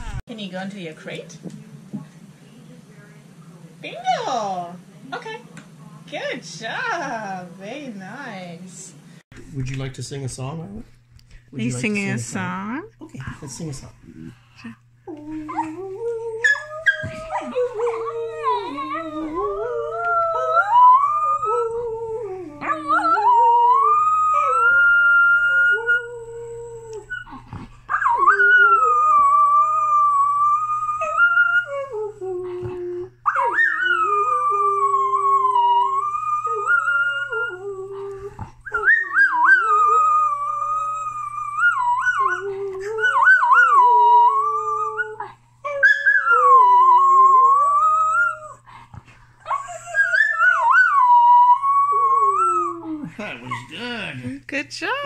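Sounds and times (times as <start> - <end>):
dog howling: 15.1 - 48.7, 49.5 - 53.1.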